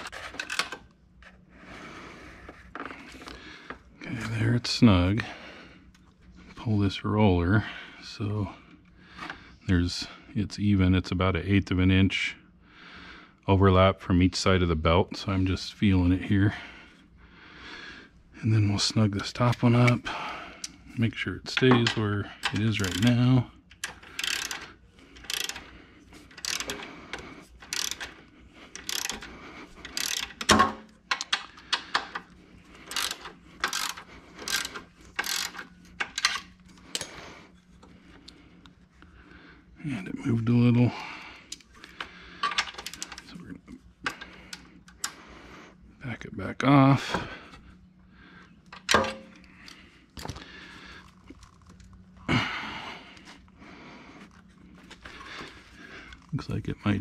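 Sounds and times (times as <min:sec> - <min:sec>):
faint steady hum: 0:00.0 - 0:57.0
ratchet wrench clicking: 0:21.8 - 0:25.7, 0:26.3 - 0:37.1, 0:42.4 - 0:43.2.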